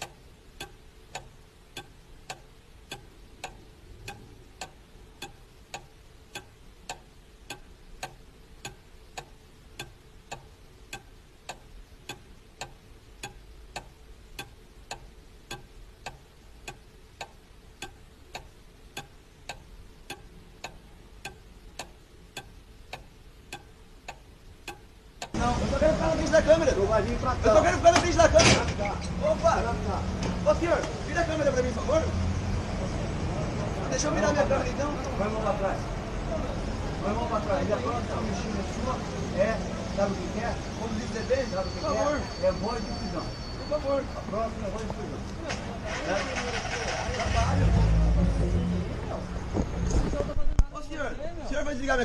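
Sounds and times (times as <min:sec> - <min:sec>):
clock ticking: 0:00.0 - 0:28.4
faint steady hum: 0:00.0 - 0:45.8.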